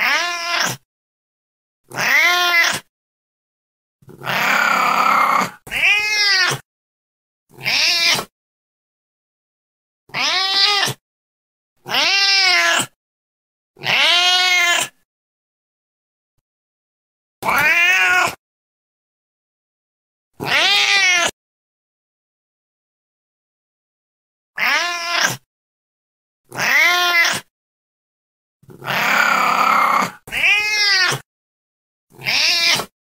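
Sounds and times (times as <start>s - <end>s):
cat meowing: 0.0s - 0.8s, 1.9s - 2.9s, 4.2s - 6.6s, 7.6s - 8.3s, 10.1s - 11.0s, 11.8s - 13.0s, 13.8s - 15.0s, 17.4s - 18.4s, 20.4s - 21.3s, 24.6s - 25.4s, 26.5s - 27.5s, 28.8s - 31.2s, 32.2s - 32.9s.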